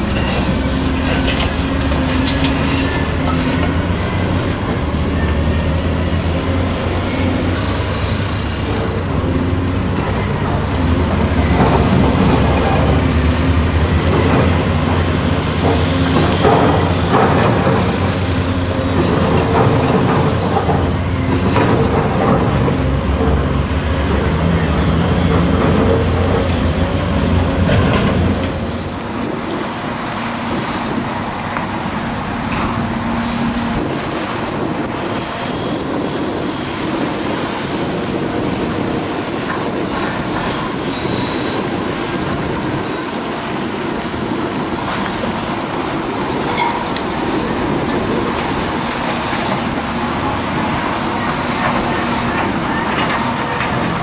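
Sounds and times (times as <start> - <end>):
distant heavy machinery: 0.0 - 54.0
dump truck diesel engine: 0.0 - 54.0.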